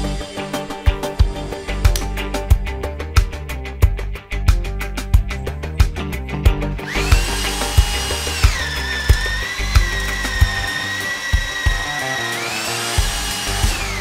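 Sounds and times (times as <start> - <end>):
background music with beat: 0.0 - 14.0
drill motor whining: 6.8 - 14.0.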